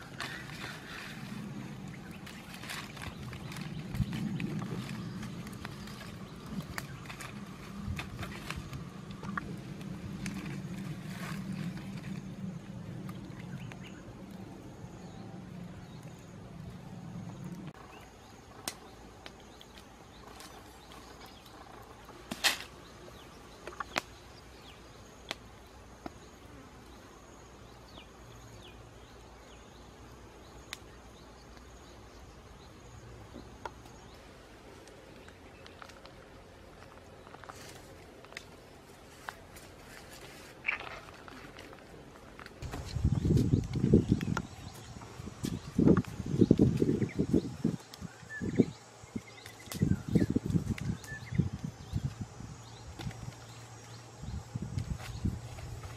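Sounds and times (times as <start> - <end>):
wood fire crackling and popping: 0.0 - 14.8, 34.7 - 53.9
low steady rumble: 0.0 - 22.2.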